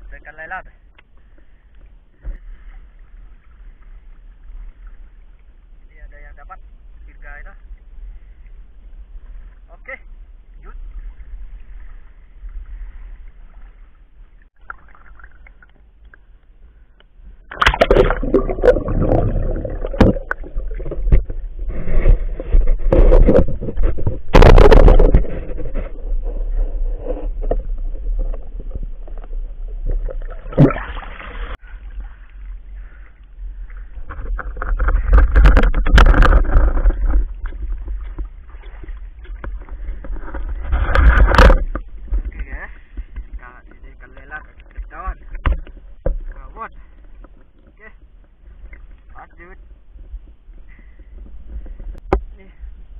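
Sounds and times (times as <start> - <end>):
water gurgling and sloshing: 0.0 - 52.9
bubbles: 14.6 - 16.0, 17.4 - 21.6, 27.7 - 32.3
knocks and scrapes on camera: 20.0 - 30.1, 34.0 - 43.8, 44.7 - 46.4.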